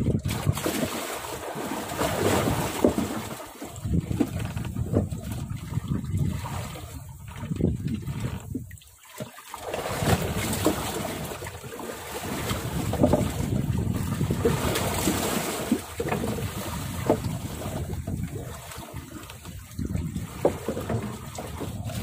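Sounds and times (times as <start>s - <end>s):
wind buffeting microphone: 0.0s - 0.8s, 1.8s - 8.8s, 12.2s - 22.0s
waves splashing around boat: 0.0s - 22.0s.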